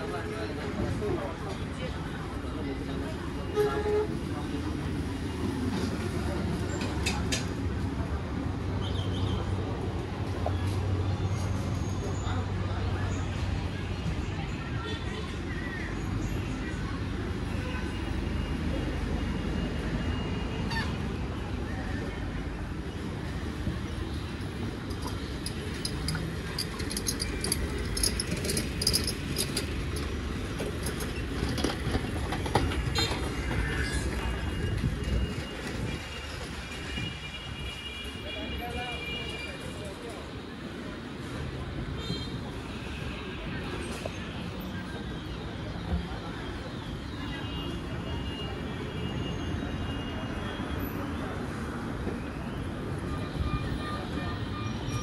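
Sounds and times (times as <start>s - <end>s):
vehicles passing close by: 0.0s - 37.2s
traffic rumble: 0.0s - 55.0s
light rattling and clicking: 24.8s - 33.2s.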